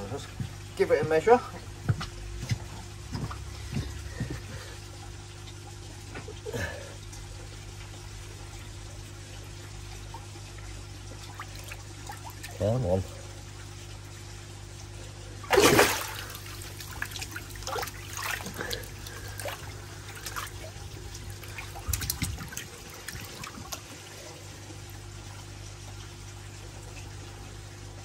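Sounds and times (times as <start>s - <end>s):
water trickling: 0.0s - 28.0s
water splashing: 11.1s - 12.8s, 15.4s - 24.1s.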